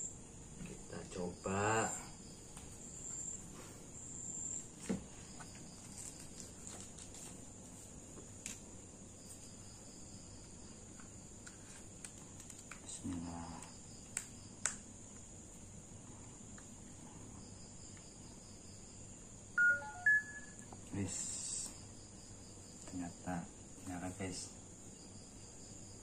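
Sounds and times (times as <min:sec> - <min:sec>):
crickets chirring: 0:00.0 - 0:26.0
short electronic beeps: 0:19.6 - 0:20.6.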